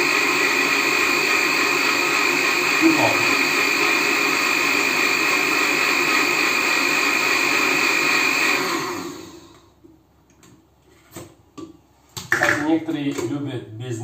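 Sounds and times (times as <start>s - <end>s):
blender whirring: 0.0s - 9.8s.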